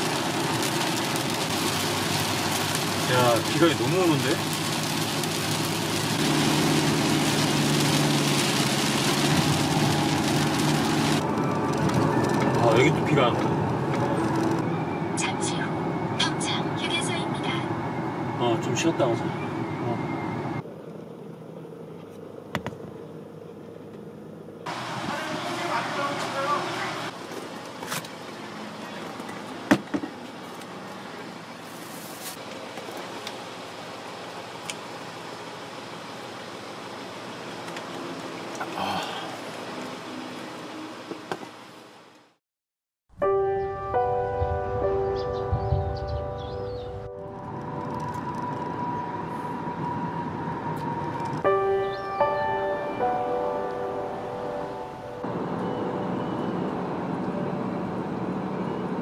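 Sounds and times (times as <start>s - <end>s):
heavy rain on car windshield: 0.0s - 14.6s, 24.7s - 29.2s
engine and road hum: 0.0s - 42.4s, 44.0s - 59.0s
vehicle background noise: 0.0s - 42.4s, 44.0s - 59.0s.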